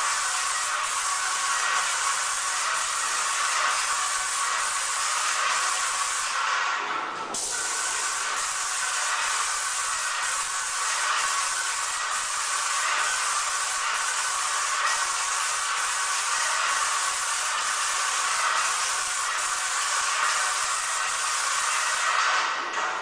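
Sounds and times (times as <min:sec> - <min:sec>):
paint sprayer hissing: 0:00.0 - 0:06.6, 0:07.4 - 0:22.9.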